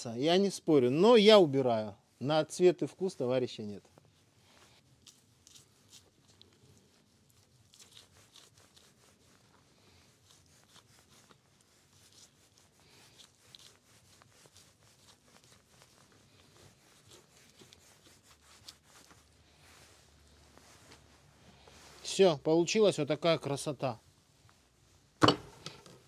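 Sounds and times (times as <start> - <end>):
knife scraping and tearing meat: 4.0 - 20.0.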